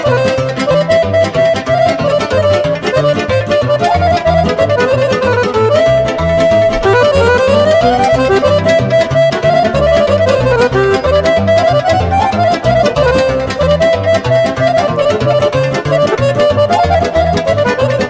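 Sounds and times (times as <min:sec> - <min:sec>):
accordion melody: 0:00.0 - 0:18.0
pulsing bass beat: 0:05.5 - 0:11.2.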